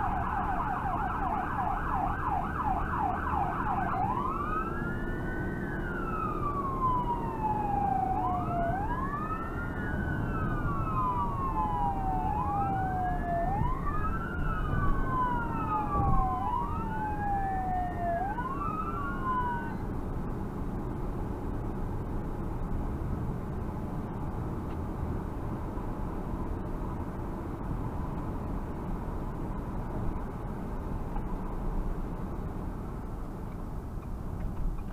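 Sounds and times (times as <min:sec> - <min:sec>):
emergency vehicle wail siren: 0:00.0 - 0:20.6
vehicle road and engine noise: 0:00.0 - 0:34.9.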